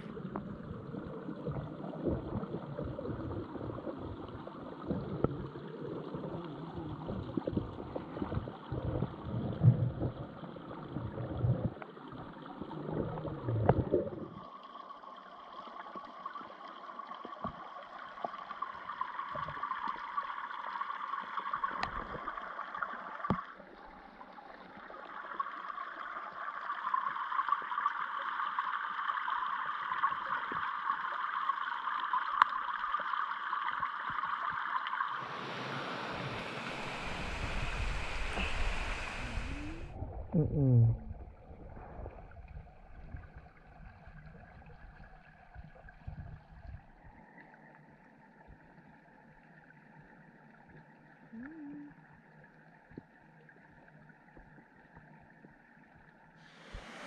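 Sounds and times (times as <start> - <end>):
underwater rushing of falling water: 0.0 - 26.8, 33.5 - 44.7, 56.4 - 57.0
underwater sloshing and gurgling: 0.0 - 57.0.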